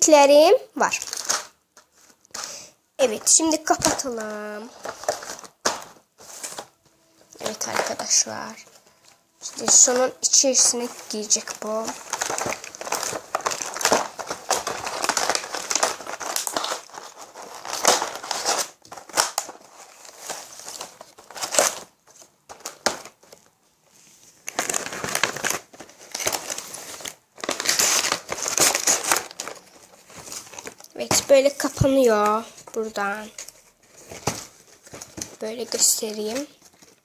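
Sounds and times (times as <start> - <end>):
cardboard box rustling and scraping: 4.7 - 6.8.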